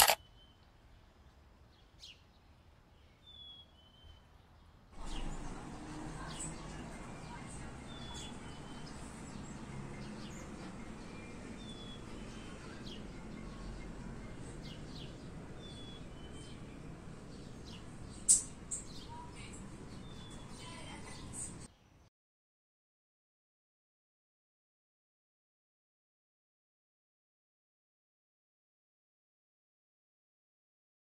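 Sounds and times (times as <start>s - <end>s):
small birds chirping: 0.0s - 22.1s.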